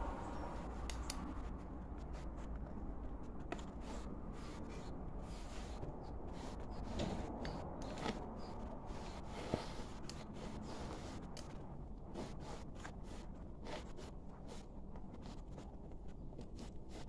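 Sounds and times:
steady low hum: 0.0s - 17.0s
denim rustling and scraping: 0.1s - 17.0s.

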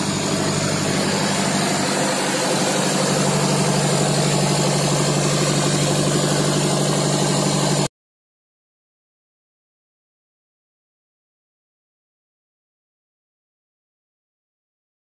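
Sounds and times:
boat engine humming: 0.0s - 7.9s.

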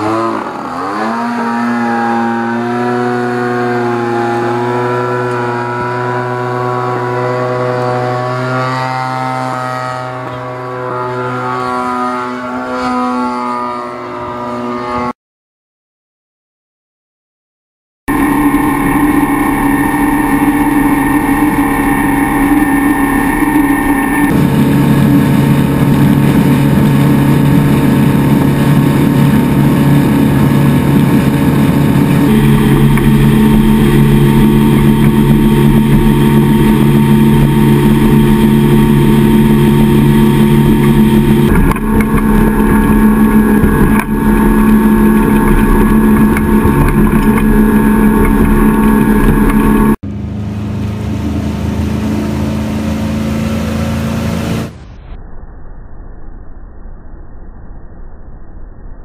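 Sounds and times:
motorboat engine drone: 0.0s - 15.1s, 18.1s - 59.0s
rushing water: 18.1s - 50.0s.

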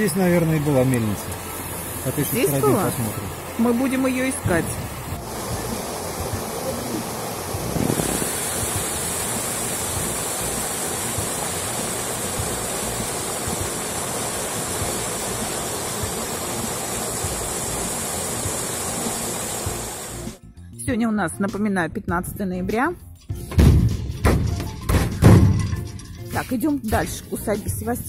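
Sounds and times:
river water rushing over rocks: 1.2s - 20.4s.

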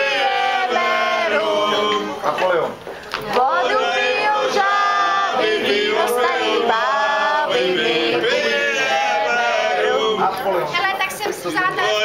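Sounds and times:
men singing together: 0.0s - 2.2s, 3.3s - 10.3s.

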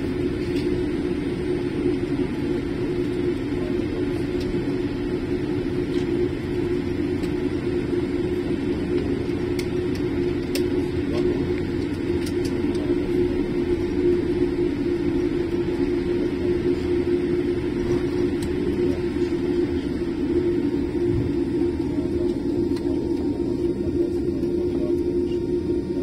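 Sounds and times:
airliner cabin rumble: 0.0s - 26.0s.

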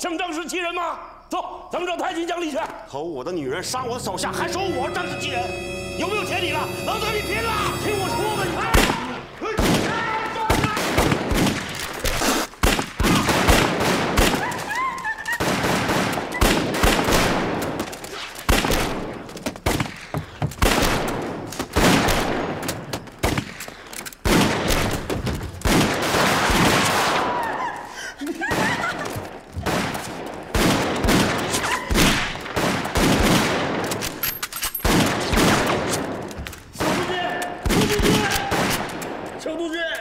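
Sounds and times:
heavy gunfire volleys: 9.5s - 14.7s, 15.4s - 27.4s, 28.4s - 34.2s, 34.8s - 39.5s
woman screaming: 14.4s - 15.4s, 27.2s - 28.6s, 31.6s - 32.0s.

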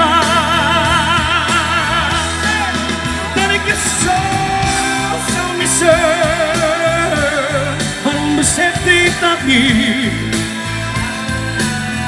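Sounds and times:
man singing pop ballad: 0.0s - 11.0s
backing music: 0.0s - 12.0s.

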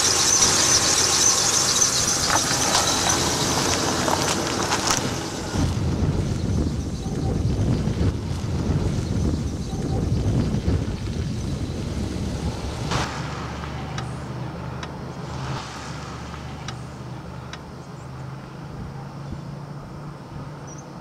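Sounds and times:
vehicle engine humming: 0.0s - 21.0s
wind on microphone: 2.2s - 17.5s.

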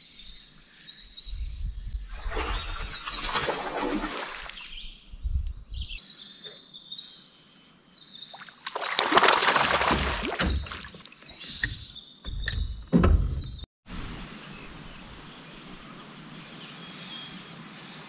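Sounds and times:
songbird singing: 0.0s - 13.7s, 14.3s - 18.0s
water splashing beside canoe: 2.1s - 4.8s, 8.4s - 11.8s.

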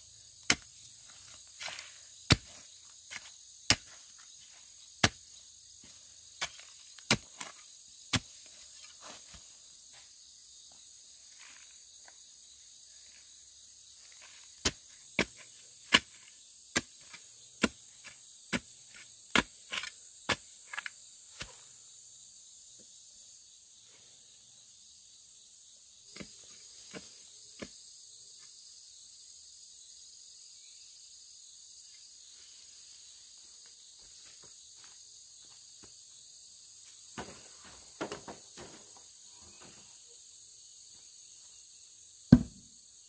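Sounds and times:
insects chirping: 0.0s - 43.0s
sharp knocks: 42.3s - 42.6s.

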